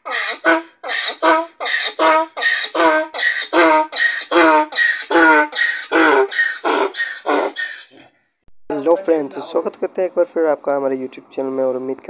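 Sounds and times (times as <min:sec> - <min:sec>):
donkey braying: 0:00.0 - 0:08.2.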